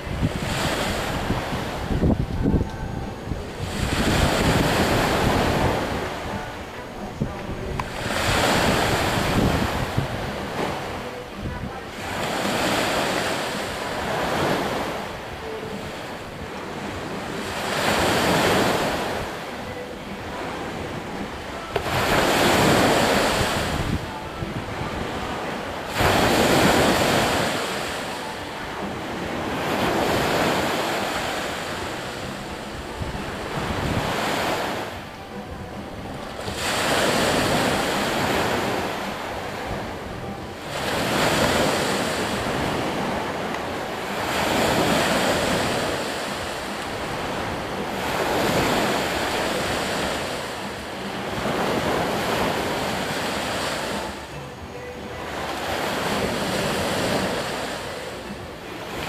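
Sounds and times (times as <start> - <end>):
waves breaking on beach: 0.0 - 59.0.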